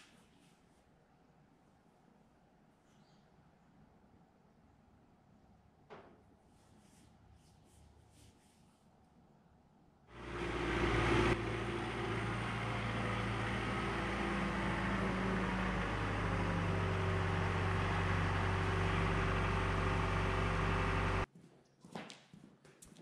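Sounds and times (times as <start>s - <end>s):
tractor diesel engine running: 10.1s - 21.3s.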